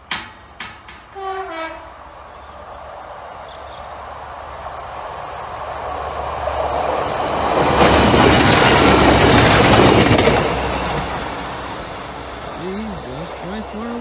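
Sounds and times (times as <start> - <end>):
train passing at speed: 0.0 - 14.0.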